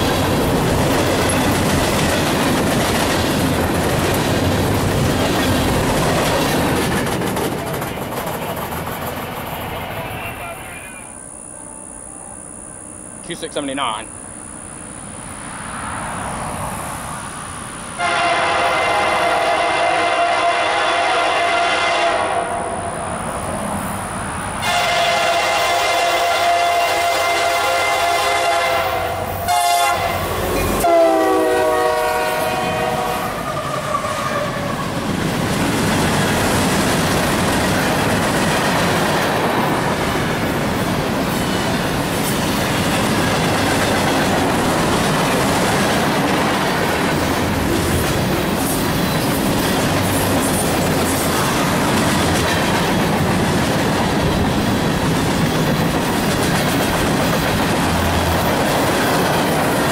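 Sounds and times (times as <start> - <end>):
freight train wheel clatter: 0.0 - 10.2, 34.6 - 59.9
train air horn: 18.0 - 23.0, 24.6 - 34.9.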